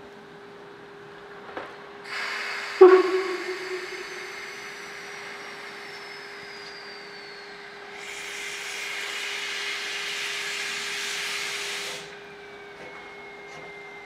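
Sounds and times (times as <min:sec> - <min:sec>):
loud hiss of steam: 0:02.1 - 0:02.9, 0:08.0 - 0:12.0
steam locomotive whistle: 0:02.4 - 0:05.2.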